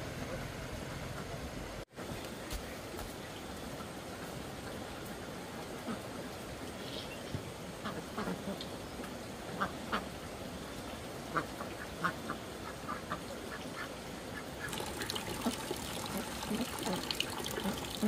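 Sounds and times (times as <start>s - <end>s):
steady background hiss: 0.0s - 18.0s.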